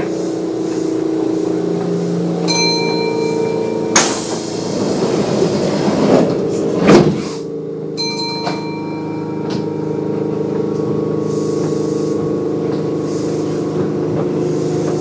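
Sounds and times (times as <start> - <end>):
train doors sliding shut: 0.0 - 15.0
chime: 2.5 - 4.1, 8.0 - 10.1.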